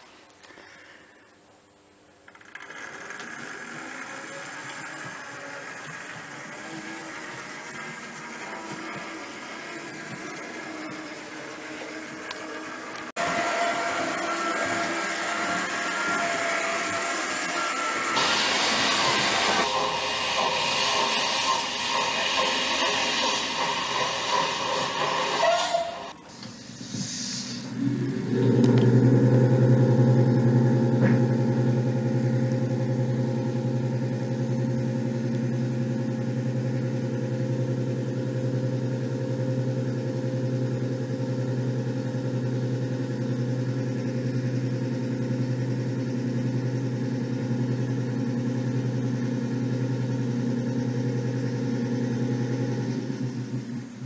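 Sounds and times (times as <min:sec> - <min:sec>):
model train motor buzzing: 0:02.3 - 0:26.2.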